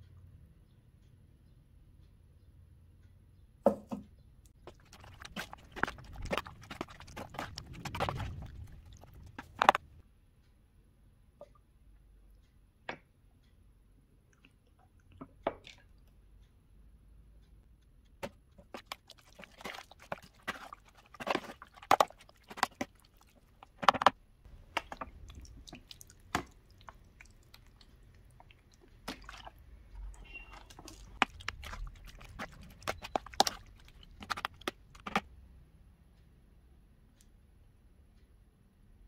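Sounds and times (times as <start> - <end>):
squishing marinade: 4.5 - 10.0, 18.1 - 35.3
spoon scraping plastic container: 4.6 - 9.8, 18.6 - 35.3.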